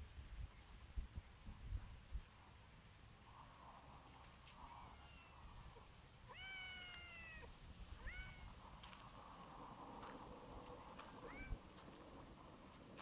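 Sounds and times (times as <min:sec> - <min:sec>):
cat meowing: 0:04.8 - 0:05.4, 0:06.3 - 0:08.5, 0:11.2 - 0:11.6.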